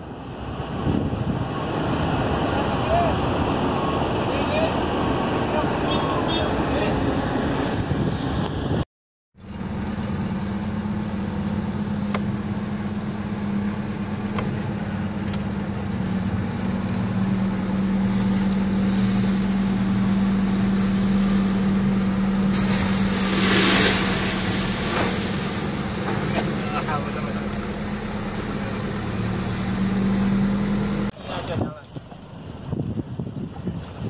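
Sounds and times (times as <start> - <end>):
vehicle engine humming: 9.4 - 34.0
wave breaking over seawall: 17.9 - 27.6.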